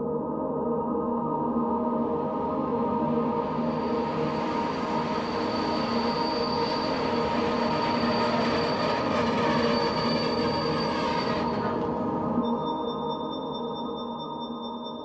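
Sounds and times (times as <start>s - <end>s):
thin high whistle: 3.7s - 15.0s.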